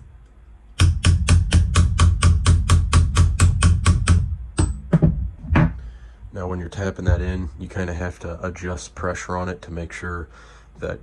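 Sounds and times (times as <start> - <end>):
small hammer tapping a pin: 0.8 - 4.8.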